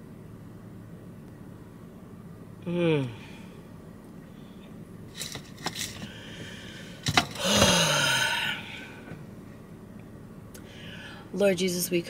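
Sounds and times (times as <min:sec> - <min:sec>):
person sighing loudly: 0:06.1 - 0:09.1.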